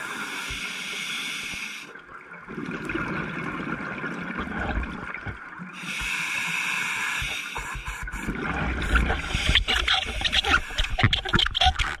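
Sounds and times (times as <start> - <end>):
regulator inhale hiss: 0.0 - 1.9, 5.8 - 8.3
gurgling exhaled bubbles: 2.4 - 5.5, 8.3 - 12.0.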